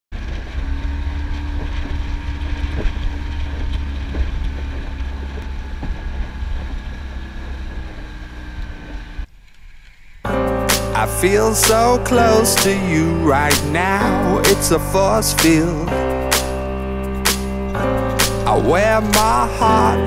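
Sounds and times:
boat motor running: 0.1 - 9.3, 10.3 - 20.0
wind buffeting microphone: 0.1 - 9.3.

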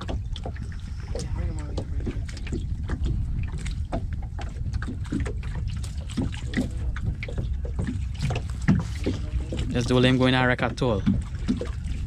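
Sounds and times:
steady low rumble: 0.0 - 12.0
water slapping against hull: 0.0 - 12.0.

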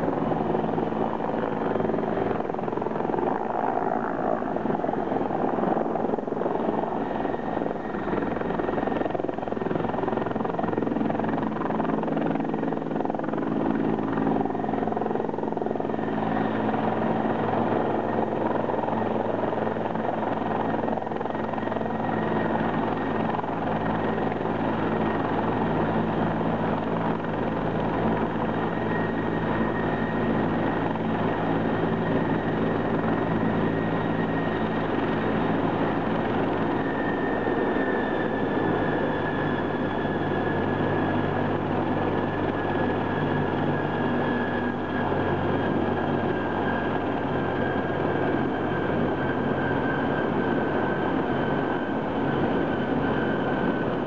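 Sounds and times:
helicopter turbine whine and rotors: 0.0 - 54.0.

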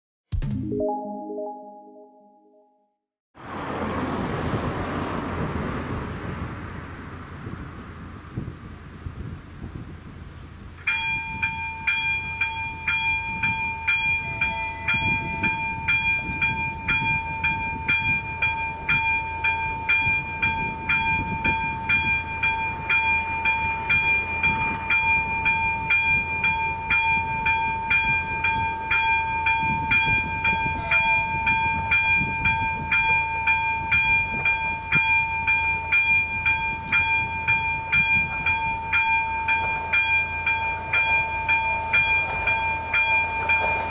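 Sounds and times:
level crossing warning bell: 10.9 - 43.9.

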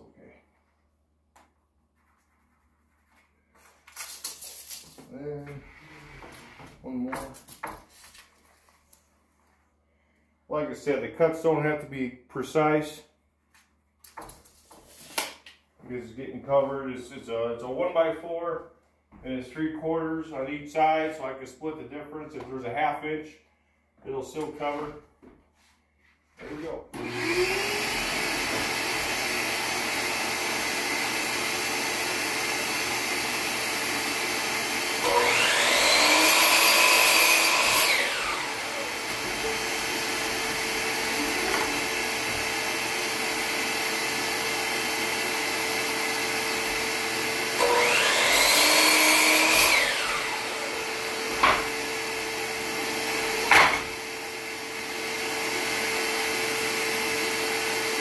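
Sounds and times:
shop vacuum running: 26.4 - 58.0
miter saw cutting wood: 26.5 - 58.0.

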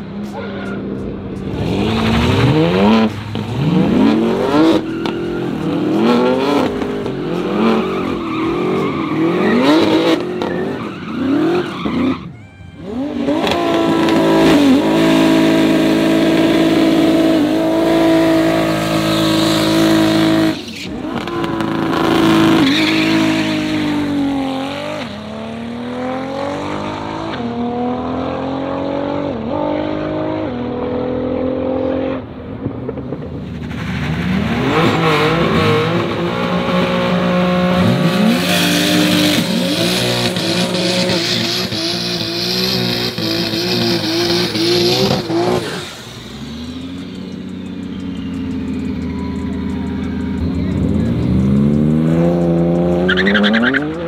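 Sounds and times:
car engines revving: 0.0 - 54.0
tyre squeal: 0.2 - 1.0, 4.2 - 25.2, 53.0 - 54.0.

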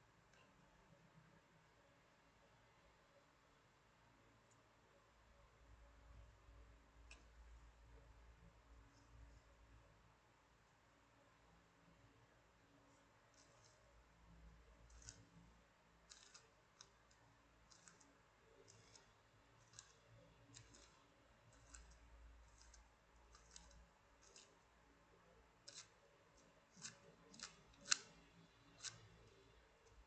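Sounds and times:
plastic puzzle clicking: 16.1 - 21.0, 26.7 - 29.4.

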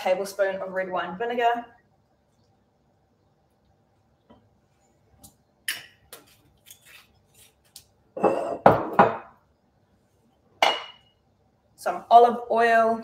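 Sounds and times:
kitchenware clinking: 8.2 - 9.4, 10.6 - 11.1.

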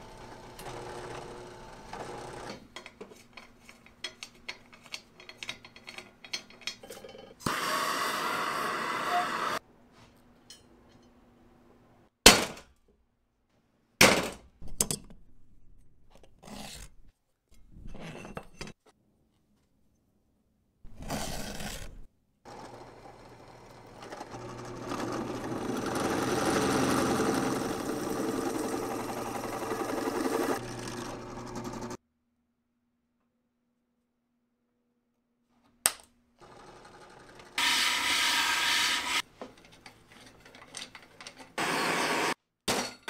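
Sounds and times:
drill boring into aluminium: 24.0 - 32.0, 37.6 - 39.2.

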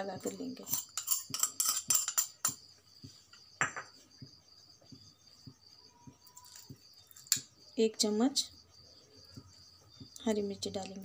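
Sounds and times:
cricket chirping: 0.0 - 11.0
saucer clinking on steel plate: 0.7 - 2.6.

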